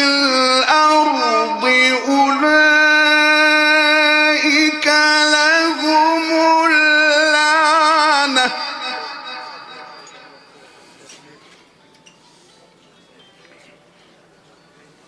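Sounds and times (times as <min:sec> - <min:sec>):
man reciting melodically: 0:00.0 - 0:11.0.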